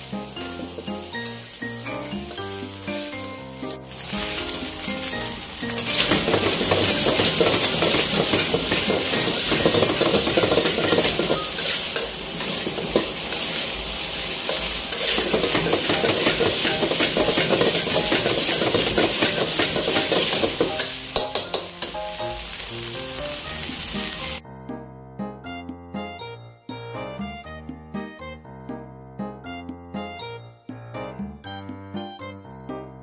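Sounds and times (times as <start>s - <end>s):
metal spatula scraping wok: 0.0s - 22.6s
rice sizzling in a wok: 0.0s - 24.4s.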